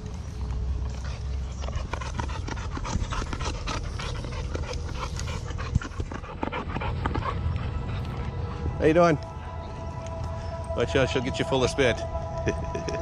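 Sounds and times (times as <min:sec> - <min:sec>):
dog panting: 0:00.2 - 0:10.3.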